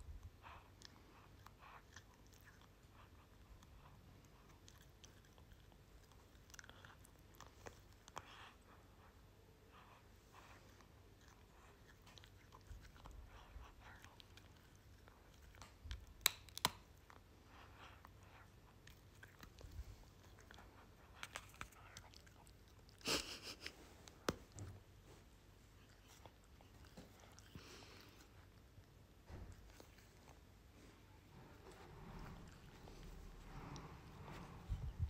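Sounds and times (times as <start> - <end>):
wet chewing and licking: 0.4 - 8.4, 10.4 - 23.0.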